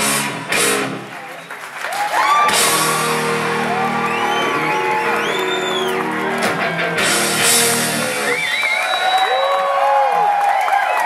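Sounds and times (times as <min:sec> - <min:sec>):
electric guitars holding chord: 0:02.5 - 0:08.4.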